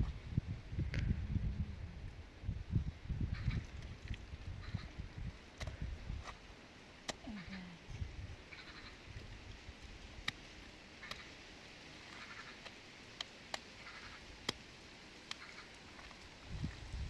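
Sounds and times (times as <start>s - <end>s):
faint animal calls: 7.1s - 9.1s, 12.1s - 12.7s, 13.8s - 14.3s.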